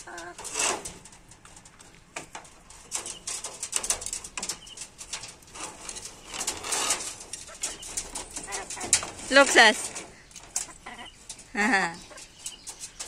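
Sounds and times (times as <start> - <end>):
hens calling: 0.0 - 0.8, 4.5 - 13.0
hens pecking taps: 0.0 - 13.0.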